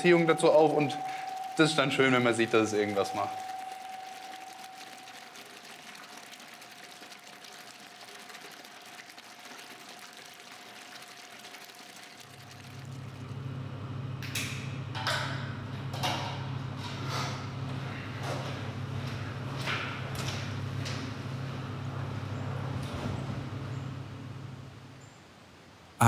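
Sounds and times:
low steady hum: 0:00.0 - 0:25.4.

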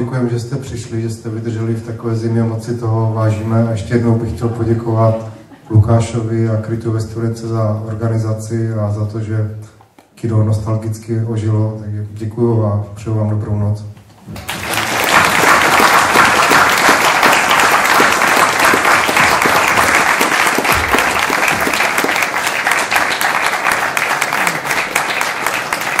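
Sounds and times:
audience applauding: 0:14.4 - 0:26.0.

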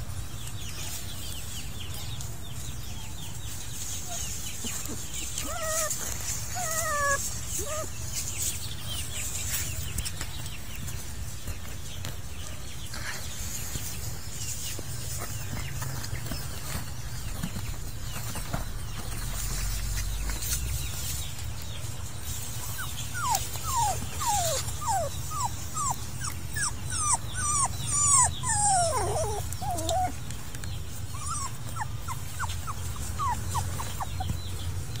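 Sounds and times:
puppies whimpering: 0:03.4 - 0:12.1, 0:22.5 - 0:35.0.

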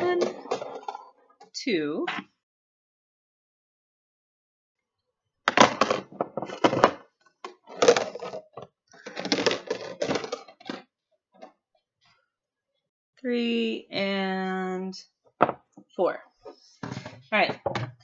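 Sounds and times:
plastic container clattering: 0:00.0 - 0:01.1, 0:05.5 - 0:10.8.

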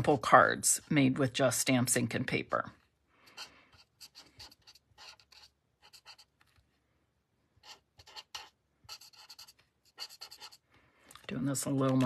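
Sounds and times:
marker scratching on cardstock: 0:03.3 - 0:06.5, 0:07.6 - 0:10.6.

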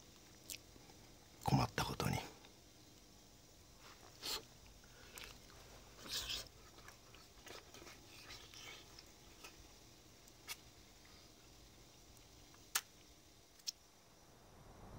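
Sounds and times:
people chewing food: 0:00.1 - 0:01.2, 0:03.7 - 0:13.0.

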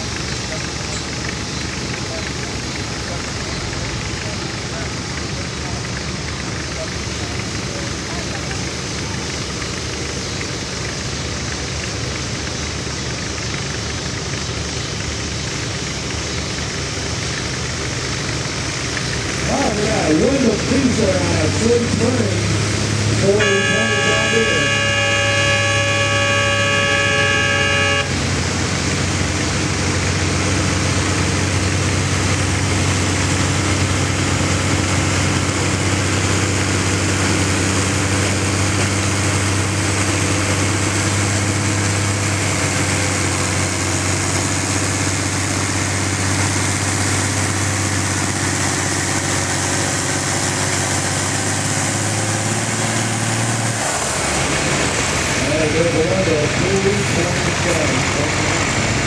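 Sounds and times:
tractor engine under heavy load: 0:00.0 - 0:59.0
horn sounding chord: 0:23.2 - 0:28.3.

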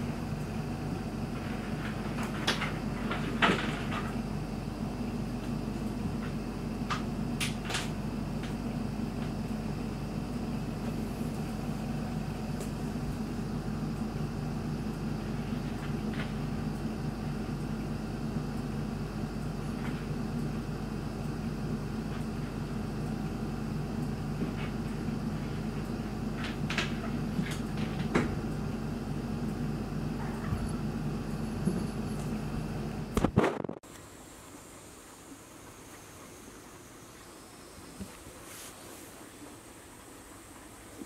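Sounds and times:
low indoor hum: 0:00.0 - 0:41.0.

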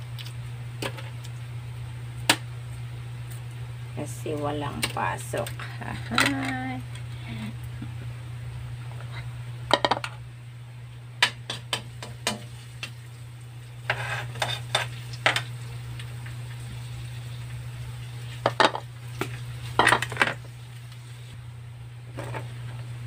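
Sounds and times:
low hum: 0:00.0 - 0:23.0
garlic frying in oil: 0:11.2 - 0:21.4
louder sizzle of onion: 0:11.3 - 0:21.4.

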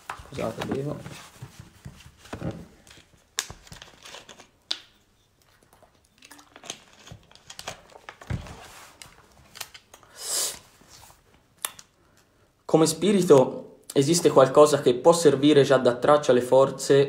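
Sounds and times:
plastic bottle crinkling: 0:02.4 - 0:08.4
loud hiss: 0:10.1 - 0:10.6.

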